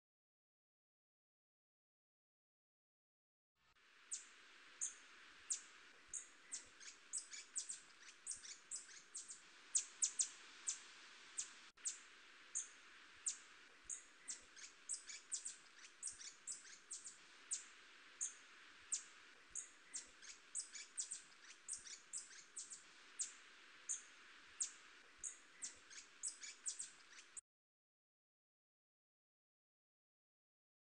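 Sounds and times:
steady background hiss: 0:03.7 - 0:27.4.

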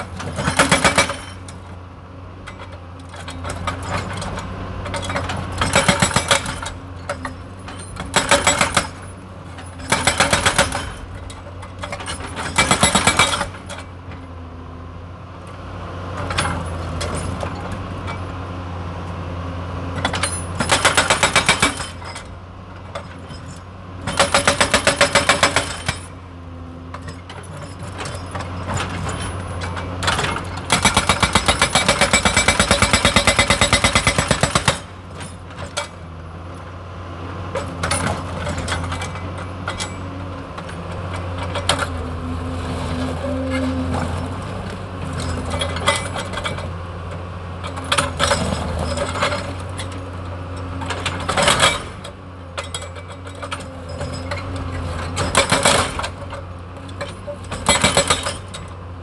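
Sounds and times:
hydraulic rock breaker hammering: 0:00.0 - 0:01.6, 0:02.5 - 0:13.9, 0:20.0 - 0:26.2, 0:26.9 - 0:36.1, 0:37.5 - 0:42.1, 0:45.1 - 0:46.7, 0:47.6 - 0:50.0, 0:50.8 - 0:58.8
diesel engine humming: 0:00.0 - 0:59.0.

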